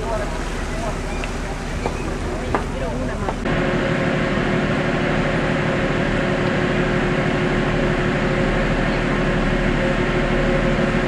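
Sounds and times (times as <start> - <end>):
ship engines droning: 0.0 - 11.0.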